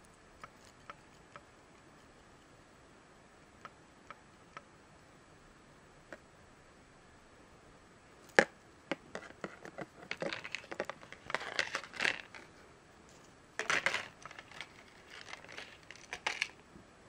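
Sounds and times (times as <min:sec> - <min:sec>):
plastic packaging crinkling: 0:10.0 - 0:12.6, 0:13.6 - 0:16.6.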